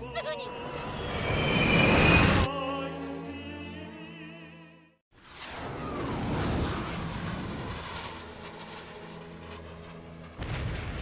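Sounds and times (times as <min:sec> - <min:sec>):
jet aircraft roaring: 0:00.7 - 0:02.5, 0:05.6 - 0:10.5.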